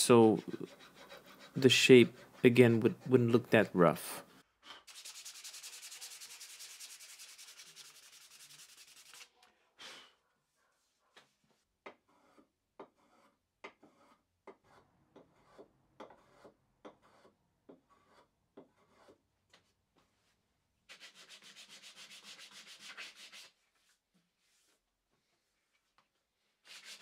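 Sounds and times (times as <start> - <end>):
hand-sanding wood with sandpaper: 0.0 - 3.1, 4.9 - 9.3, 20.9 - 24.7, 26.6 - 27.0.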